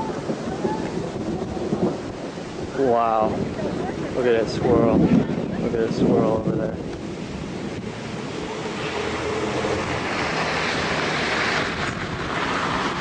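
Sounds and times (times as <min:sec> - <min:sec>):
wind on microphone: 0:00.0 - 0:13.0.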